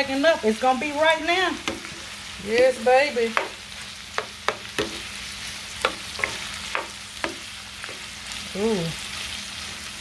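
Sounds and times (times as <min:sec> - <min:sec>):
food sizzling in a frying pan: 0:00.0 - 0:10.0
spoon knocking against a pan: 0:01.6 - 0:02.0, 0:03.3 - 0:03.6, 0:04.2 - 0:05.0, 0:05.8 - 0:08.0.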